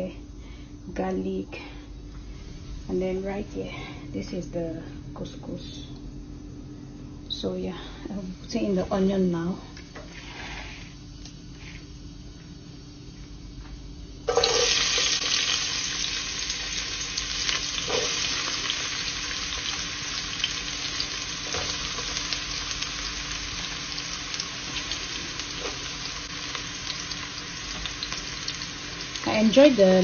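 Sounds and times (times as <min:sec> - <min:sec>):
onion sizzling in hot oil: 0:14.3 - 0:30.0.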